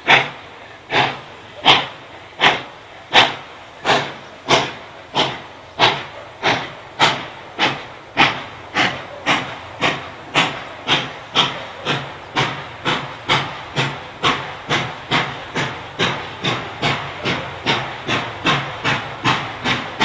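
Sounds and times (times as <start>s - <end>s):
steam locomotive chuffing: 0.0s - 20.0s.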